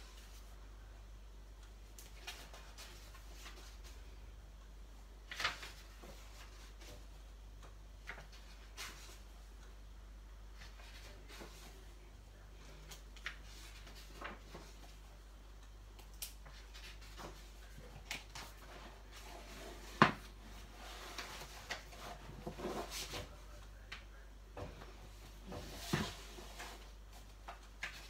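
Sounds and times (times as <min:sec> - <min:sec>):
paper pages rustling: 0:02.0 - 0:04.0, 0:05.2 - 0:07.0, 0:08.0 - 0:09.3, 0:10.5 - 0:11.8, 0:12.6 - 0:15.1, 0:16.4 - 0:23.9, 0:25.2 - 0:28.0.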